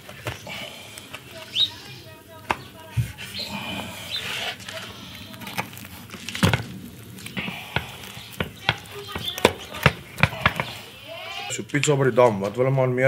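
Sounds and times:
knife crunching pizza crust: 2.5s - 10.9s.

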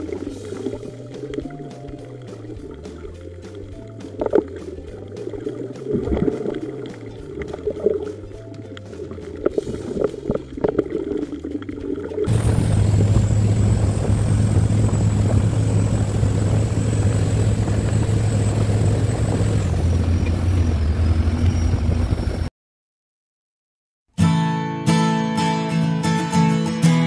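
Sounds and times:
regulator bubbles gurgling underwater: 0.0s - 19.6s
boat engine hum: 0.0s - 22.5s
thin high whine: 12.3s - 22.5s.

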